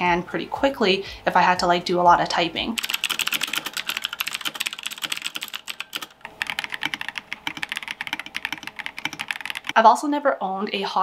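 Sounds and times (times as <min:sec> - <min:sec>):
fast typing on mechanical keyboard: 0:02.8 - 0:09.8.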